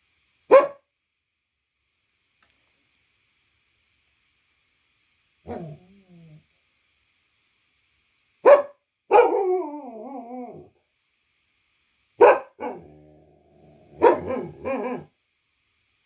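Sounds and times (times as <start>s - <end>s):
dog barking: 0.5s - 0.9s, 5.5s - 5.8s, 8.4s - 9.7s, 12.2s - 12.9s, 13.9s - 15.1s.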